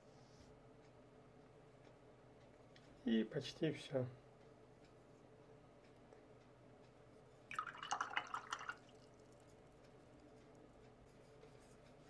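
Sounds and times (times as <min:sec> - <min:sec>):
paintbrush rinsed in water jar: 0:07.5 - 0:09.4.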